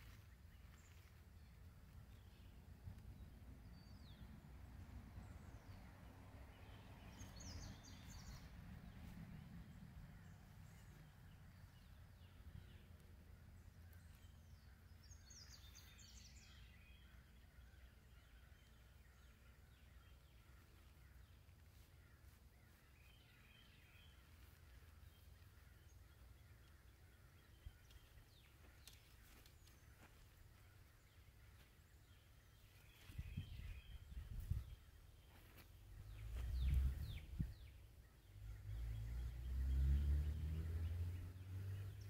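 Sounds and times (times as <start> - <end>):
brief low rumble: 36.0 - 37.7.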